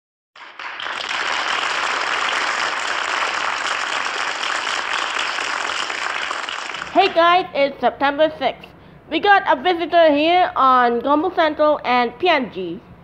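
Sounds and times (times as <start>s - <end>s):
audience applause: 0.4s - 7.0s.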